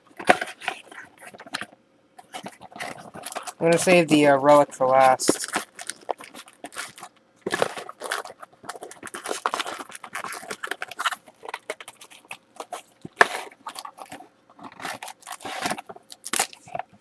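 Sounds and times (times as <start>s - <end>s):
card packs rustling and crinkling: 0.0s - 17.0s.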